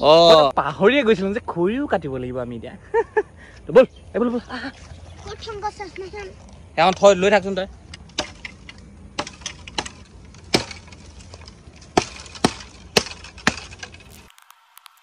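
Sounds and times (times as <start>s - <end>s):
machete chopping dry bamboo: 7.9s - 15.0s.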